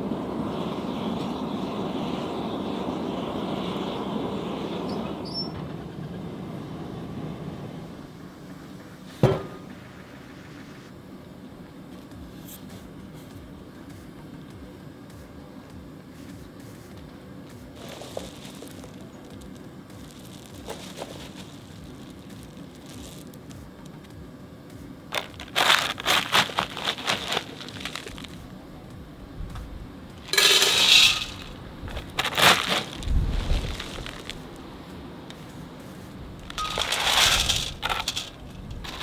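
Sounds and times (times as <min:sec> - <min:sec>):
plastic scoop crunching dry ice: 0:17.8 - 0:23.5, 0:25.1 - 0:28.5, 0:30.2 - 0:34.5, 0:36.4 - 0:39.0
dry ice rattling into metal bowl: 0:25.1 - 0:28.4, 0:30.2 - 0:34.3, 0:36.4 - 0:39.0.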